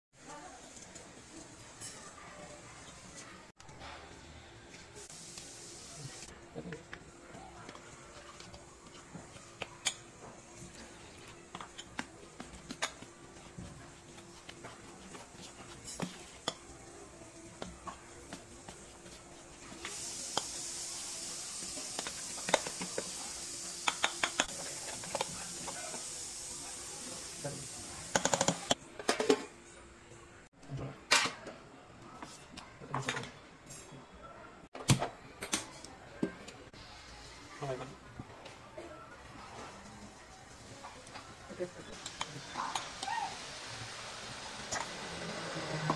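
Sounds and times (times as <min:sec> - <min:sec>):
spoon stirring thick batter: 0:06.7 - 0:20.6.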